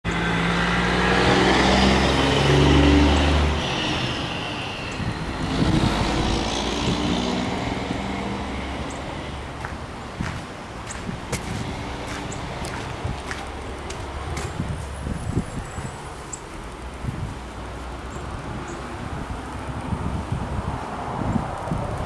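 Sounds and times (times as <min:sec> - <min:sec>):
motor vehicle engine running: 0:00.0 - 0:22.0.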